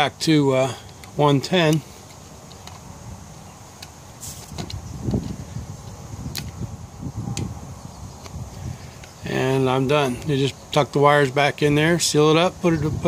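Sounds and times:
sharp clicks of connectors: 0.8s - 2.9s, 6.3s - 6.6s
handling noise rustling: 3.7s - 6.6s.

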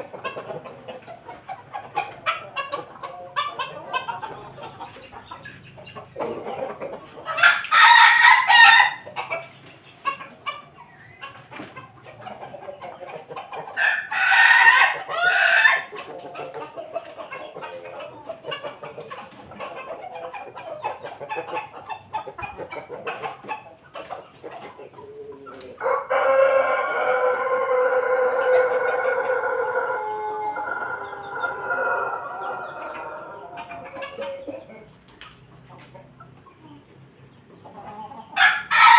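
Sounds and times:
chickens clucking: 0.0s - 38.9s
rooster crowing: 13.8s - 15.9s, 25.8s - 33.5s, 38.4s - 38.9s.

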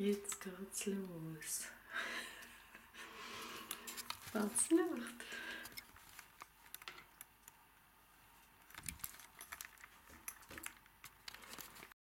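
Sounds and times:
light clicks and jingles: 8.4s - 11.9s.

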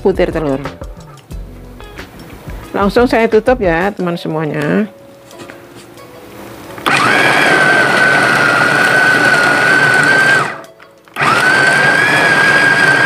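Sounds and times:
food chopper motor whine: 6.8s - 13.0s.

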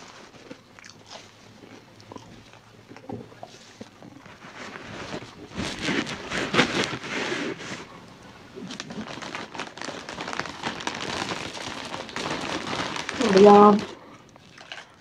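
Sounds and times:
chewing with crackling: 0.0s - 5.5s, 13.8s - 15.0s
plastic food container rustling: 4.3s - 7.9s, 8.7s - 14.0s.

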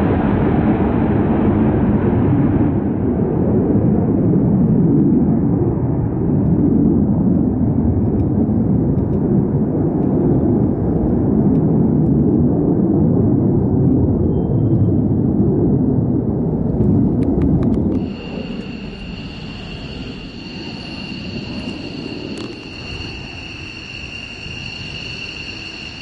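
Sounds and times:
fighter jet engine rumbling: 14.8s - 26.0s.

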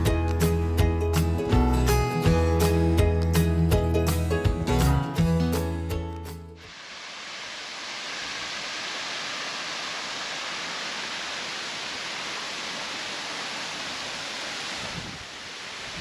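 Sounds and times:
waterfall rushing: 6.6s - 16.0s
wind buffeting microphone: 14.8s - 16.0s.

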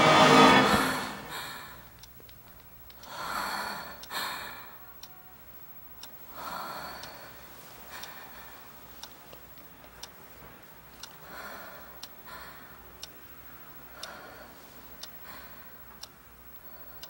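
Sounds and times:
person breathing: 0.0s - 1.9s, 3.0s - 4.8s, 6.2s - 9.1s, 11.1s - 13.1s, 13.8s - 16.0s
clock ticking softly: 1.3s - 17.0s.

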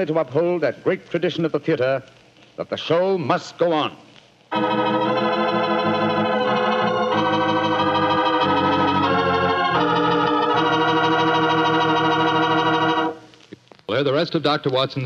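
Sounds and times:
organ playing sustained chords: 4.5s - 13.3s.

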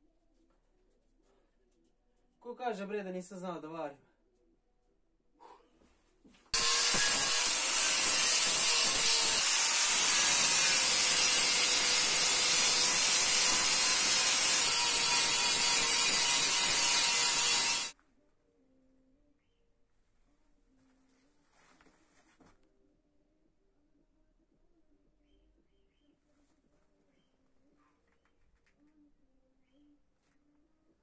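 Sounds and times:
power tool running on metal: 6.6s - 17.9s.

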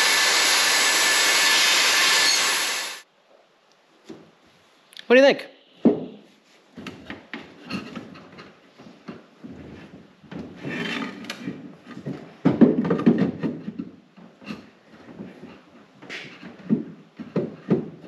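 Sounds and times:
wood knocking and clicking: 11.8s - 14.4s.

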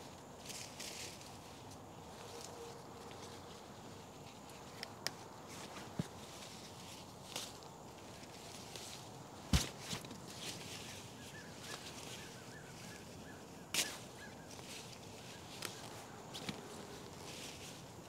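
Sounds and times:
plants snapping and clicking: 4.7s - 5.2s.

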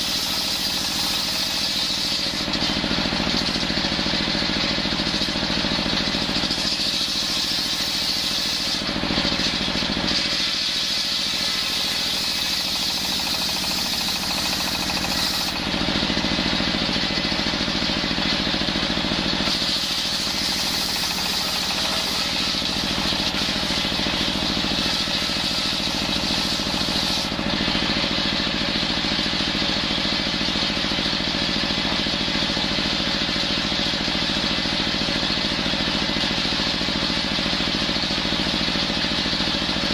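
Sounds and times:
saw blade hissing through wood: 0.0s - 4.2s, 6.0s - 27.9s
table saw running: 0.0s - 39.9s.

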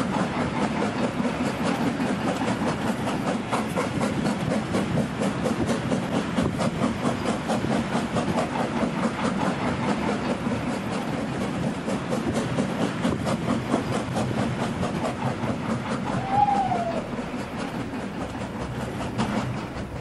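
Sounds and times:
train wheels clicking over rail joints: 0.0s - 20.0s.

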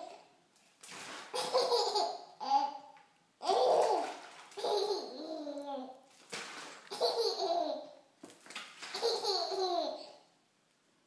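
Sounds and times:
baby laughing: 1.3s - 6.0s, 6.9s - 8.0s, 8.9s - 10.2s.

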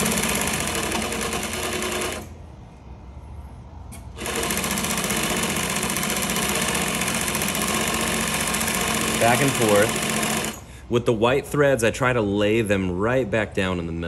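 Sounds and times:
sewing machine running: 0.0s - 2.3s, 4.0s - 10.7s.

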